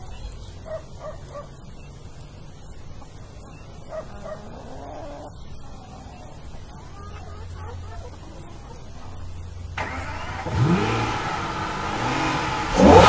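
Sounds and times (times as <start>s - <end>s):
dog yipping: 0.6s - 1.6s, 3.8s - 9.2s.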